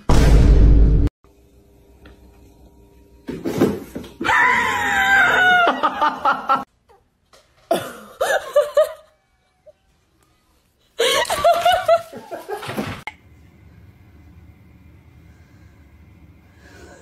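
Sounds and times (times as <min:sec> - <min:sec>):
person screaming: 0:04.2 - 0:05.8.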